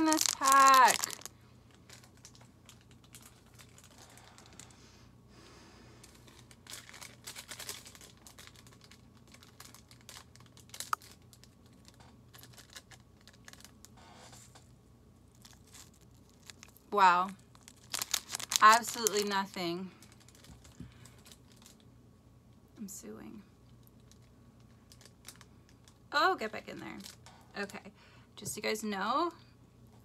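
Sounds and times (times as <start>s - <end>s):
plastic packet crinkling: 0.0s - 4.7s, 6.0s - 14.0s, 15.3s - 21.9s, 23.8s - 26.0s, 26.6s - 27.3s.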